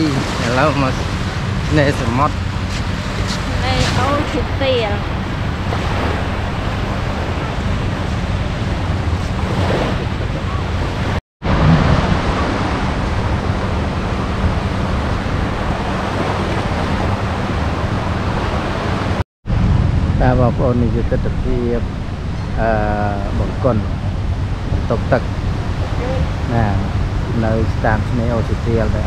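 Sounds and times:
small waves washing onto beach: 0:00.0 - 0:05.0, 0:05.6 - 0:19.2
wind rumble on microphone: 0:00.0 - 0:29.0.

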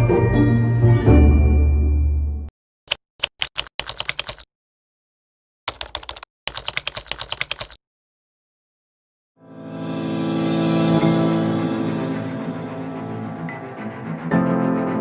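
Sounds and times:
music: 0:00.0 - 0:02.5, 0:09.4 - 0:15.0
keyboard key clicks: 0:02.9 - 0:04.4.

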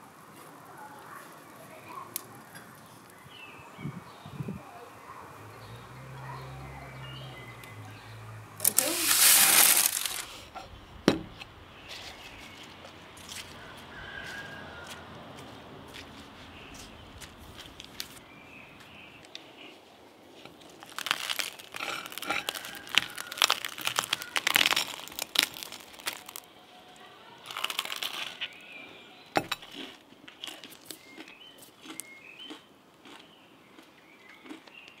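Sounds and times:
faint birds chirping: 0:00.0 - 0:29.9, 0:30.7 - 0:35.0
crisp crackling and crunching: 0:00.2 - 0:03.2, 0:08.6 - 0:10.5, 0:15.9 - 0:19.7, 0:20.3 - 0:35.0.

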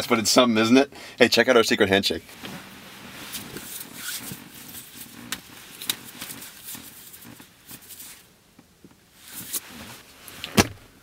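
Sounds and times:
hands slapping and rubbing: 0:02.4 - 0:08.2.

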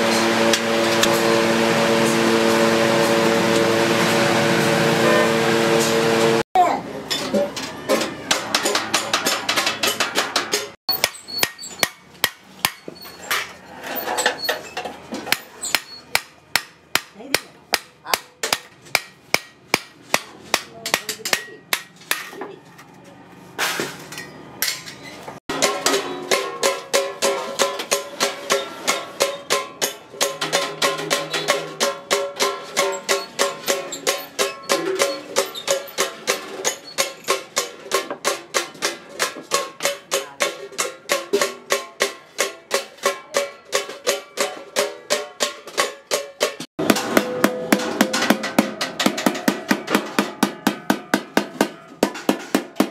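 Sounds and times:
hammer striking chisel on metal: 0:08.0 - 0:13.5, 0:14.3 - 0:22.6, 0:25.5 - 0:52.9.

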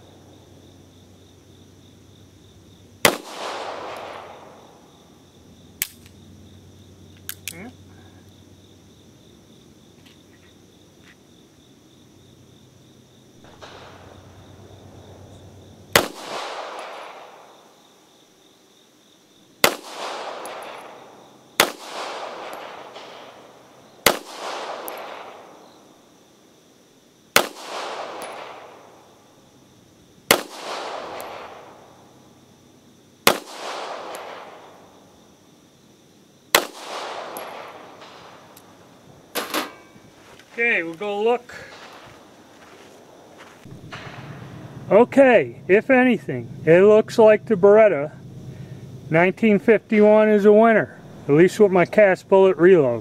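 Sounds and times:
pistol shots with echo: 0:03.0 - 0:04.7, 0:15.9 - 0:17.6, 0:19.6 - 0:25.6, 0:27.4 - 0:28.9, 0:30.3 - 0:32.0, 0:33.2 - 0:34.9, 0:36.5 - 0:38.6.

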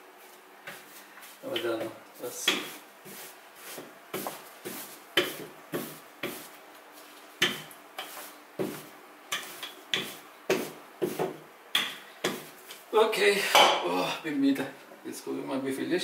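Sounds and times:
rolling pin rolling over dough: 0:00.2 - 0:06.6, 0:07.4 - 0:11.4.

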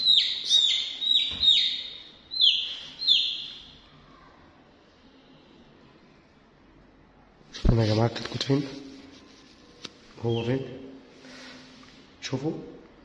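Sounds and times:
chick peeping: 0:00.0 - 0:03.7.

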